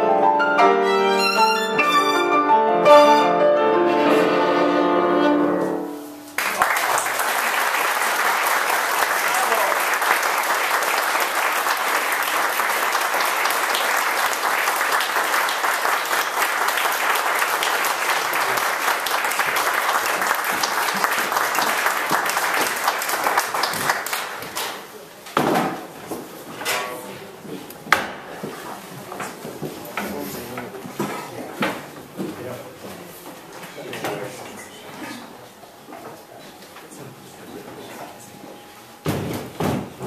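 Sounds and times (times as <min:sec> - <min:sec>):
audience applauding: 0:06.4 - 0:24.6.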